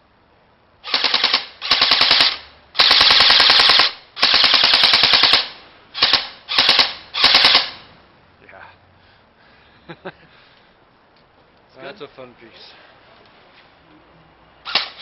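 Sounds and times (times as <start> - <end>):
airsoft rifle firing bursts: 0.8 - 7.8, 14.6 - 15.0.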